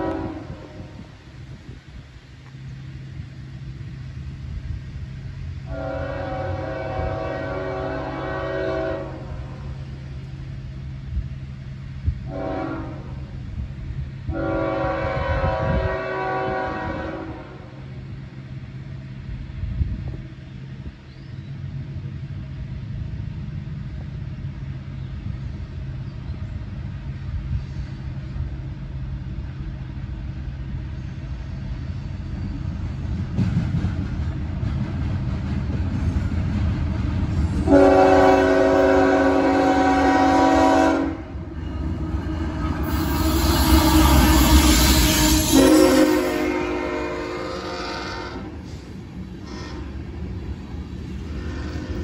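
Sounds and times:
locomotive air horn blasts: 0:00.0 - 0:01.1, 0:05.6 - 0:09.6, 0:12.2 - 0:13.3, 0:14.3 - 0:17.8, 0:37.6 - 0:41.5, 0:42.3 - 0:48.8, 0:49.4 - 0:50.0
low rumble of diesel train: 0:00.0 - 0:52.0.

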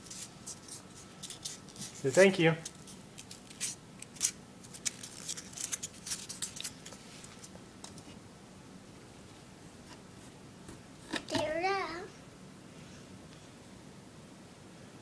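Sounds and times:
gifts clicking and rustling: 0:00.5 - 0:08.0.

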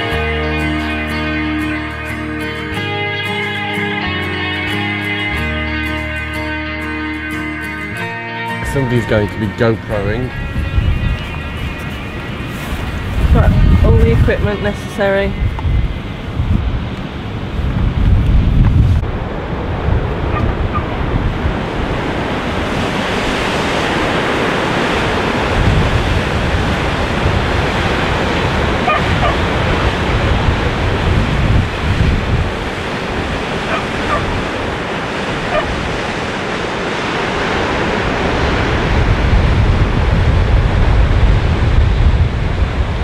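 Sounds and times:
wind buffeting microphone: 0:08.6 - 0:43.0
surf breaking on rocks: 0:18.6 - 0:43.0.

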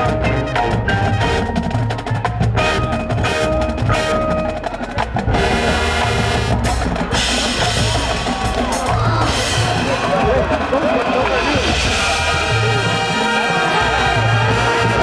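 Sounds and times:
mallet keyboards and bells: 0:00.0 - 0:06.2
drumline strokes and rolls: 0:00.0 - 0:15.0
marching band playing: 0:00.0 - 0:15.0.

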